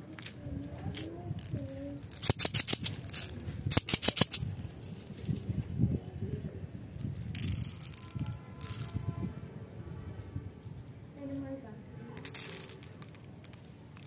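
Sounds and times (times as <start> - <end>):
candies rattling in plastic tube: 0.2 - 5.5, 6.9 - 9.0, 12.2 - 14.0.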